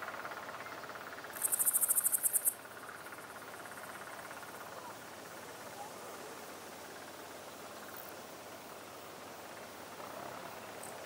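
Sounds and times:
faint pulsing insect chirr: 0.0 - 11.0
insect high fast trill: 1.0 - 4.7.

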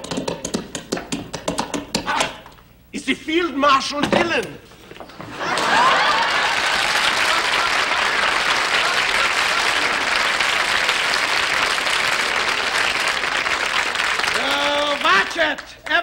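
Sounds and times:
studio audience applauding: 5.4 - 16.0.

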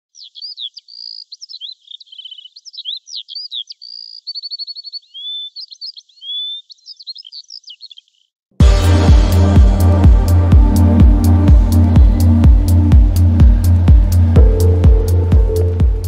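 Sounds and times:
bird singing: 0.1 - 8.3.

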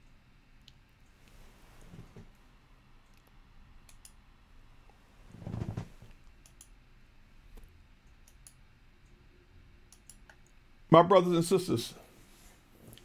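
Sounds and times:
faint clicks: 3.0 - 4.2, 6.1 - 6.8, 7.5 - 9.2, 9.9 - 10.6.

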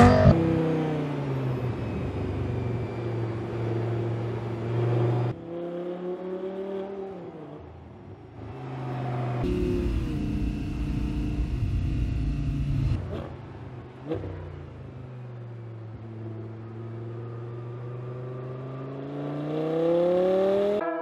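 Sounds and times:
car engine running while driving: 8.6 - 20.8.

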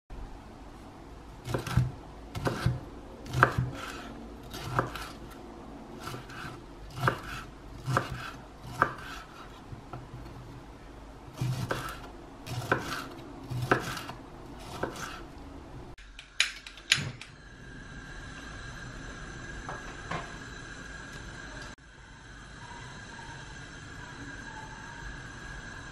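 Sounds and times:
knife chopping on wooden board: 1.4 - 5.2, 6.0 - 10.1, 11.4 - 15.2.

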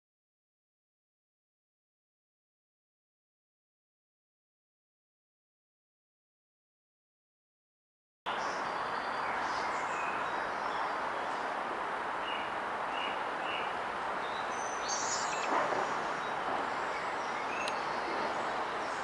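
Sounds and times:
small birds chirping: 8.3 - 11.6, 12.2 - 19.0
steady background hiss: 8.3 - 19.0.

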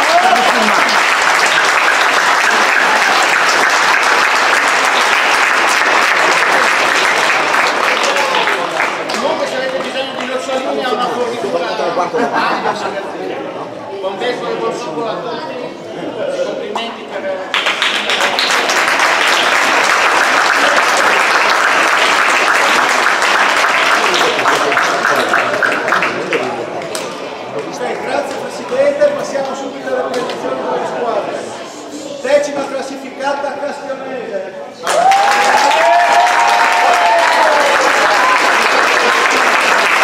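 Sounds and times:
audience applauding: 0.0 - 10.7, 17.5 - 27.1, 34.8 - 40.0.

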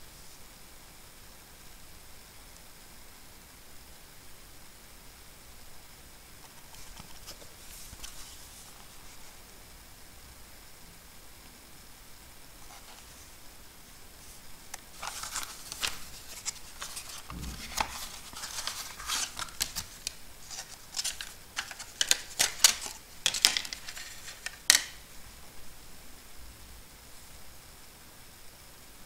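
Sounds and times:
cardboard and plastic rustling: 14.2 - 25.0.

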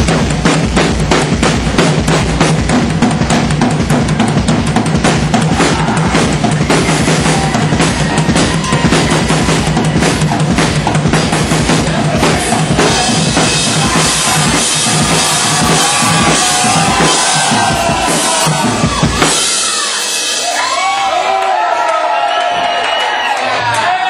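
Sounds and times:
rock drum solo: 0.0 - 21.3
crowd shouting and whooping: 5.3 - 24.0.

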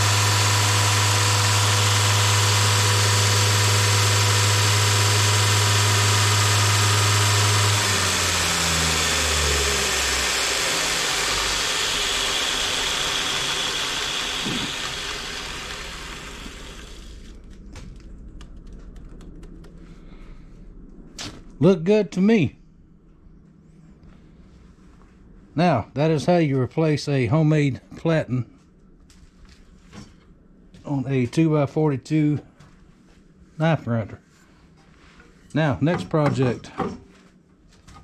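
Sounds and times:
belt grinder humming: 0.0 - 17.4
motor coasting down: 0.0 - 19.7.

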